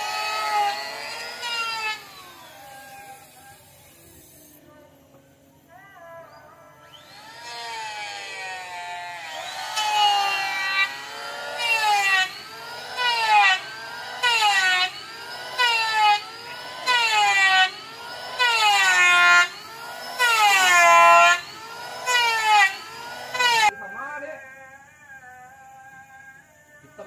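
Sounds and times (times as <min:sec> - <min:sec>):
power tool cutting wood: 0:00.0 - 0:04.6, 0:06.8 - 0:23.7.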